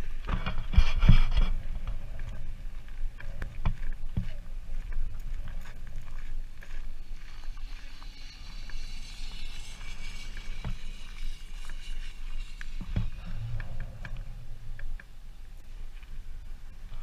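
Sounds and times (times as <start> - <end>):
wind on microphone: 0.0 - 17.0
footsteps on gravel: 0.6 - 14.7
high hiss: 7.0 - 15.0.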